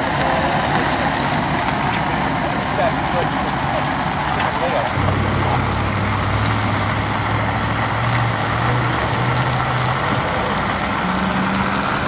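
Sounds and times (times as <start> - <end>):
heavy engine humming: 0.0 - 12.0.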